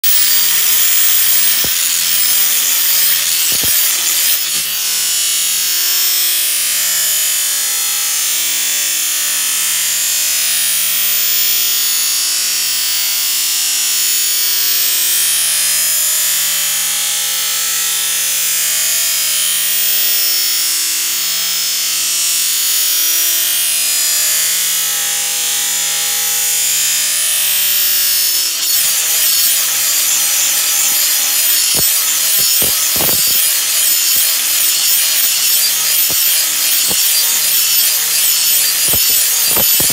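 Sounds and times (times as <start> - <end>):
sharp clicks: 0.0 - 4.7
angle grinder grinding steel: 0.0 - 8.7, 22.7 - 39.9.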